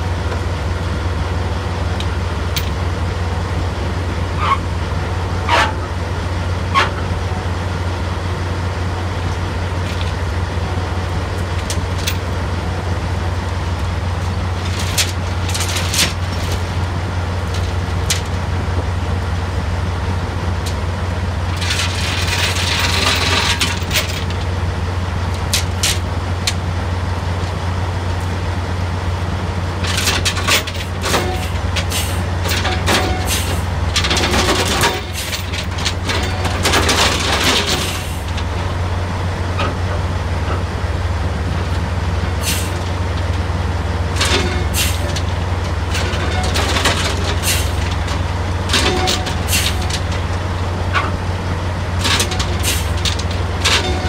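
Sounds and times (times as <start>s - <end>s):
engines droning: 0.0s - 54.0s
metal clanks of chain: 21.6s - 24.4s, 29.8s - 38.4s, 45.9s - 50.2s.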